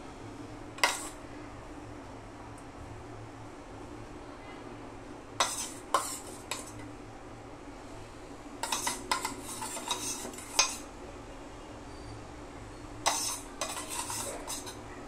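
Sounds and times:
spoon tapping and scraping: 0.8s - 1.2s, 5.4s - 6.9s, 8.6s - 10.9s, 13.0s - 14.8s
metal spoon clinking on dishes: 5.4s - 6.8s, 8.6s - 10.8s, 13.0s - 14.8s.

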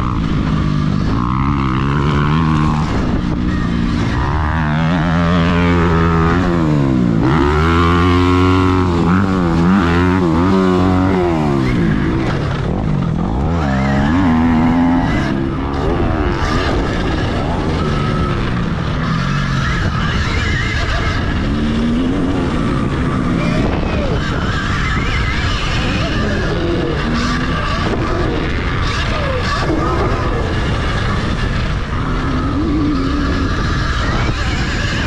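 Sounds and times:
dirt bike engines revving: 0.0s - 35.0s.

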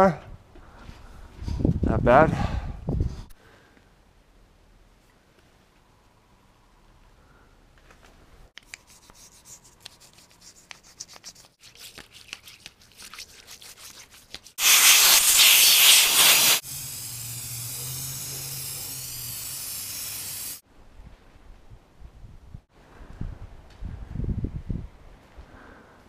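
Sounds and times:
toothbrush scrubbing metal: 8.6s - 16.6s
aerosol spray can spraying: 14.6s - 20.6s
loud hiss: 14.6s - 20.6s.

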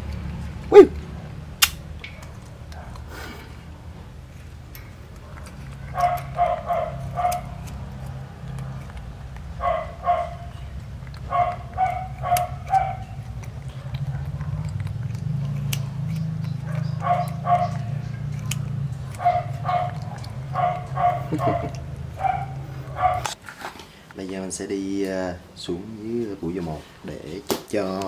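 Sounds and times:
dog barking: 0.7s - 1.0s, 2.2s - 3.0s, 5.2s - 8.8s, 9.5s - 23.4s.

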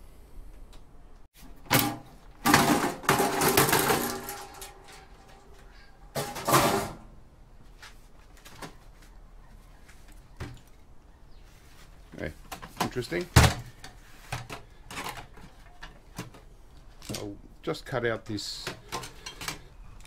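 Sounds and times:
metallic rattling and scraping: 1.6s - 7.1s.

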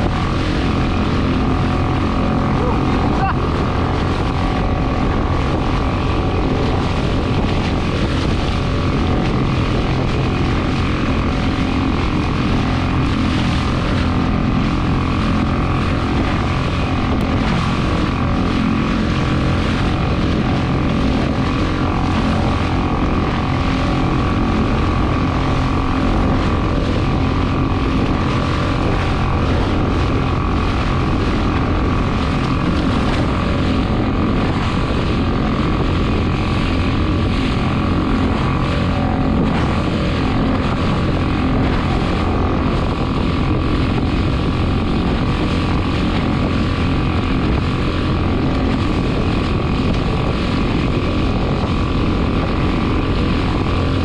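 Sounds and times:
boat motor running: 0.0s - 54.0s.

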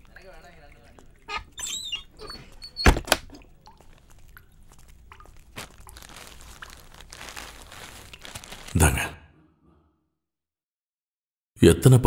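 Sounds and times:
faint door creak: 1.3s - 3.4s
wooden door thunking shut: 2.8s - 3.3s.

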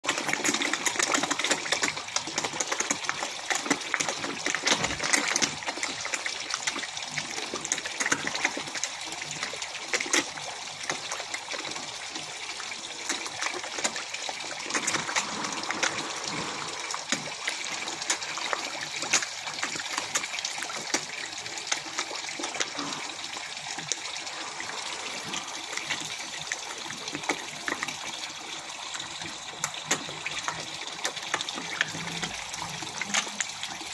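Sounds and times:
fish splashing: 0.0s - 33.9s.

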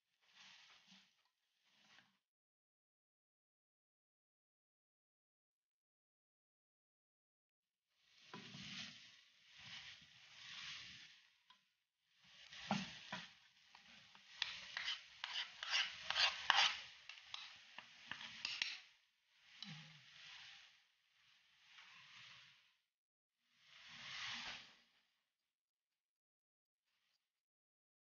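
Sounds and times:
food sizzling: 12.2s - 20.8s
spatula scraping metal pan: 12.5s - 18.9s.

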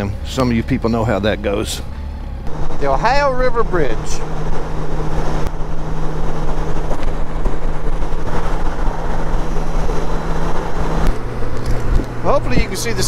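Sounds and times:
motorcycle engine cruising: 0.0s - 13.0s
wind rushing on microphone: 2.5s - 13.0s.

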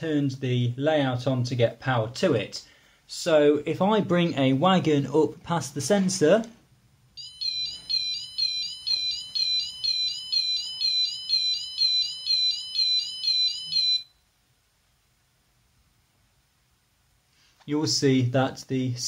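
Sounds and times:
warbling electronic crossing alarm: 7.2s - 14.2s.

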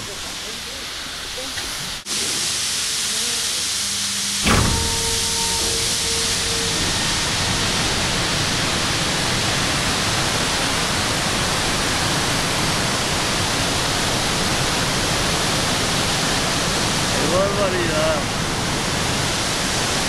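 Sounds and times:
water rushing down spillway: 0.0s - 20.0s
steady tone: 3.8s - 10.8s.

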